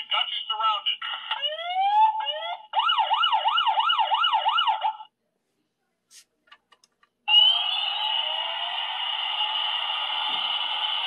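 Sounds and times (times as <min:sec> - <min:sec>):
electronic siren wailing: 0:07.3 - 0:11.0.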